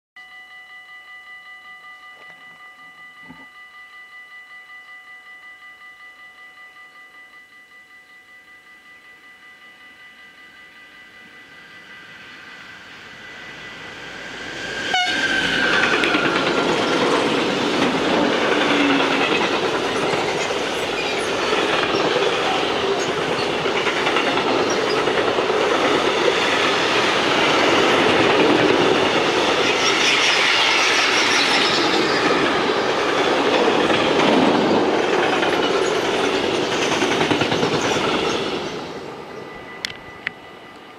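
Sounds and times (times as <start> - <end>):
train wheels on rails: 10.2 - 40.9
locomotive horn chord: 14.9 - 15.6.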